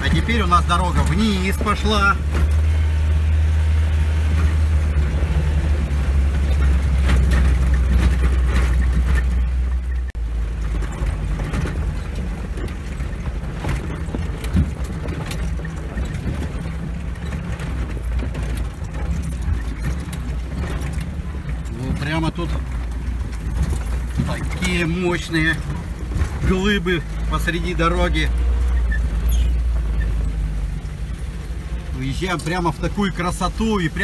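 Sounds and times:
off-road vehicle engine running: 0.0 - 34.0
vehicle body knocks and rattles: 4.2 - 27.6.

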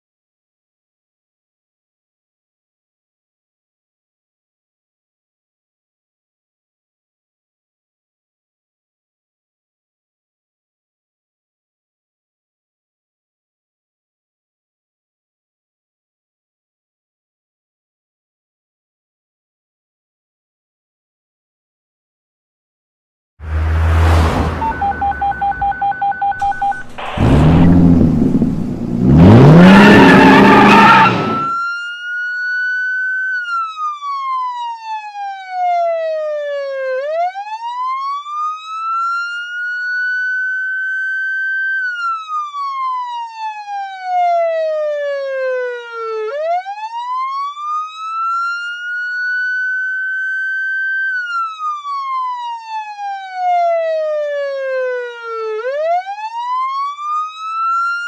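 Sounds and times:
police siren wailing: 23.5 - 58.0
short beeps: 24.5 - 27.8, 30.5 - 31.6
loud rumbling burst: 26.4 - 31.4.

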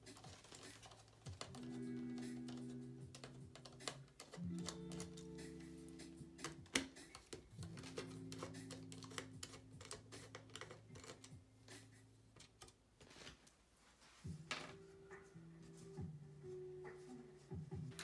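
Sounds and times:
faint background music: 0.0 - 18.0
screwdriver clicking on metal: 6.4 - 11.4.

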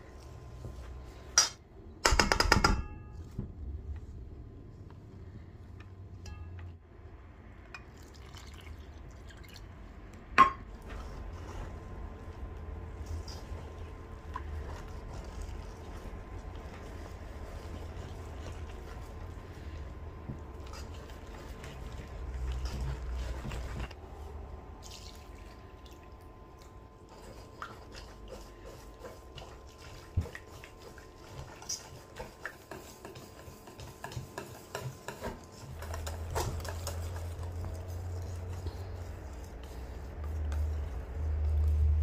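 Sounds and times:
whisk beating batter: 10.8 - 24.0, 26.6 - 42.0
whisk clicking on metal bowl: 27.2 - 41.7.

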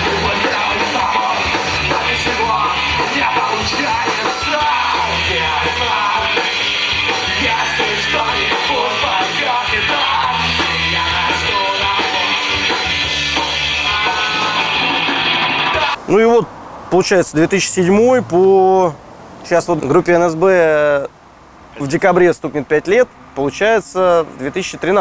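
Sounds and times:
person singing: 0.0 - 14.8
drum kit: 0.0 - 16.0
electric guitars: 0.0 - 16.0.

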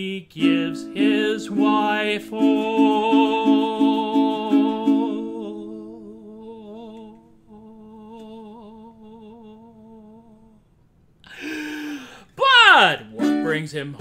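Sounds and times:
man singing a long note: 0.0 - 10.6
ukulele strums: 0.4 - 5.8, 13.1 - 13.7.

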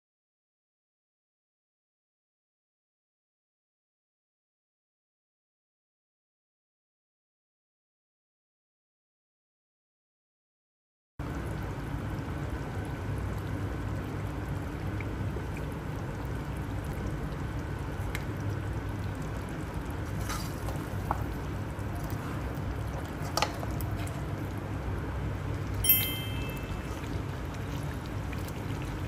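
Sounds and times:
food simmering in oil: 11.2 - 29.0
metal ladle clinking on pan: 25.8 - 27.0.

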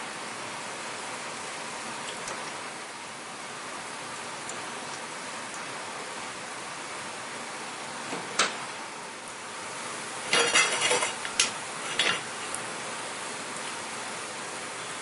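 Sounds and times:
steady hiss: 0.0 - 15.0
metal kitchenware clinking: 10.3 - 11.2, 11.9 - 12.2.

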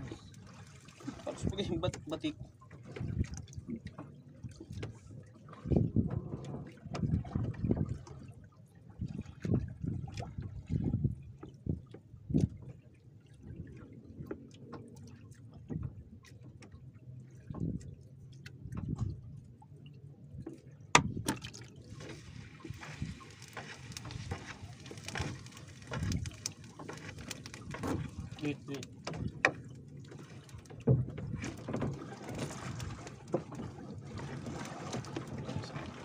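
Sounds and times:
water sloshing and dripping: 0.0 - 36.0
net knocking against boat hull: 20.9 - 21.5.

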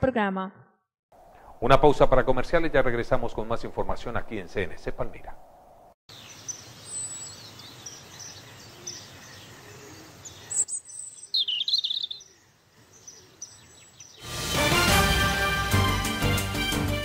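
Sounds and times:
outdoor ambience: 1.1 - 14.6
birds chirping: 1.3 - 14.3
loud music: 14.2 - 17.0.

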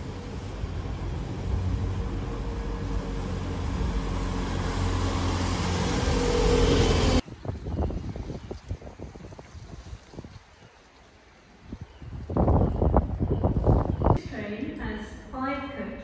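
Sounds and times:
bus engine droning: 0.0 - 7.2.

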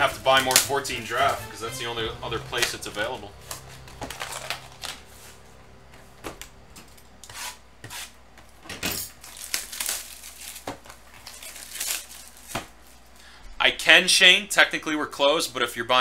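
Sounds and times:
plastic wrap crinkling: 2.6 - 5.5, 9.1 - 13.2.

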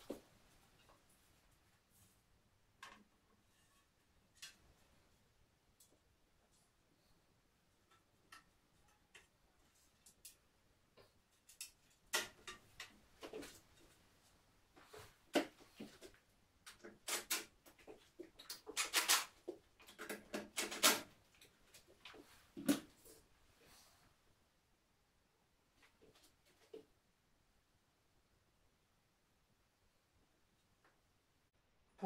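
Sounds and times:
mirror panels clicking and scraping: 11.2 - 14.0, 16.7 - 21.2.

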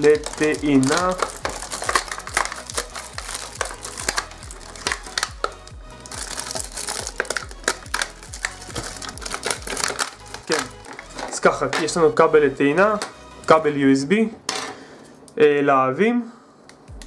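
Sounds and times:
packaging crinkling: 0.0 - 12.0
background music with low beat: 0.0 - 14.5, 16.7 - 17.0.

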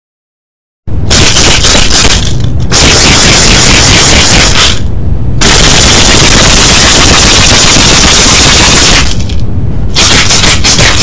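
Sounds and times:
maracas rattling: 1.1 - 4.9, 10.0 - 11.0.

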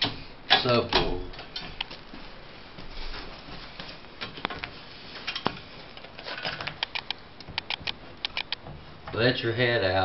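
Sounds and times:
rustling: 1.5 - 9.3.

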